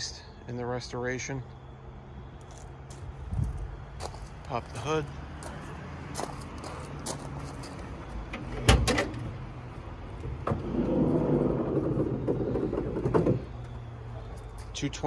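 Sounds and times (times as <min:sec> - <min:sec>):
car hood rubbing and rattling: 0:10.3 - 0:13.6.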